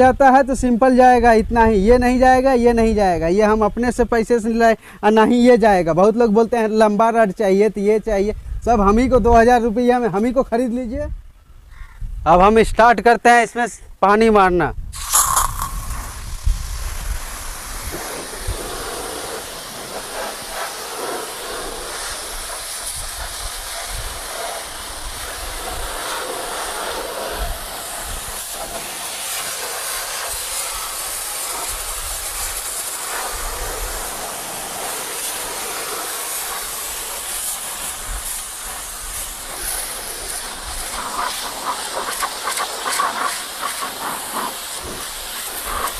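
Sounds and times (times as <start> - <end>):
pressure washer spraying water: 15.0 - 45.9.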